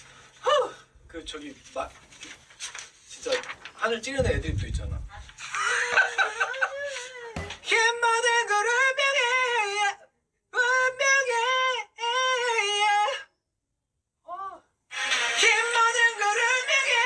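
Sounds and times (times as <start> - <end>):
man singing with vibrato: 6.4 - 13.4, 14.9 - 17.0.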